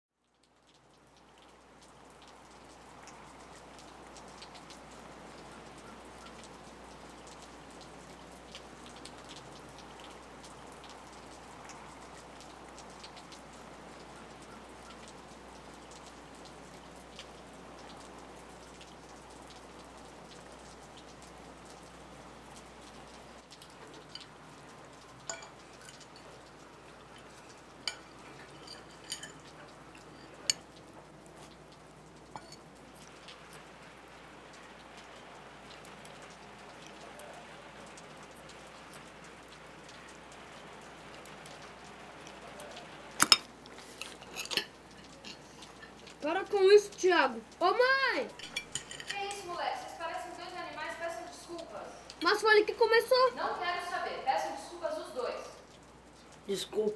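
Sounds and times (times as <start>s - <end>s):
rain-like patter: 0.1s - 56.9s
cutlery clinking on ceramic plate: 27.9s - 29.5s, 32.4s - 32.6s, 43.2s - 45.4s, 48.4s - 49.2s.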